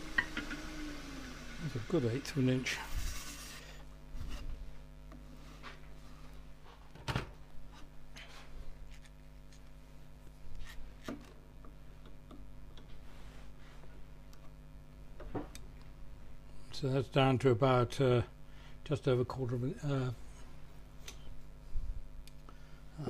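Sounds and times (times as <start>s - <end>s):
workshop machinery hum: 0.0s - 23.0s.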